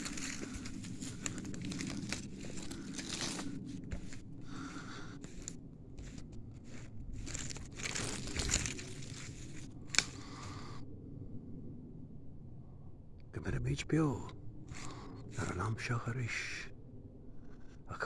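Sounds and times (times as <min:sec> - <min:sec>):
footsteps crunching through leaves: 0:00.0 - 0:10.6
sharp crack: 0:09.8 - 0:10.5.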